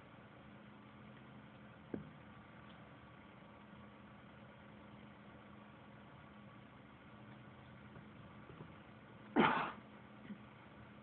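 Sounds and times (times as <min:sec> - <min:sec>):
faint steady hum: 0:00.0 - 0:11.0
person sneezing: 0:09.3 - 0:09.8.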